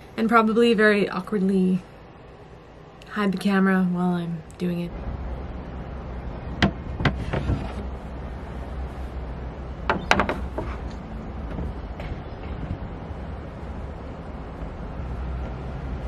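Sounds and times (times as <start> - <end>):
low rumble of wind: 0.0 - 16.0
wooden hatch knocking: 6.6 - 7.8, 9.9 - 10.8.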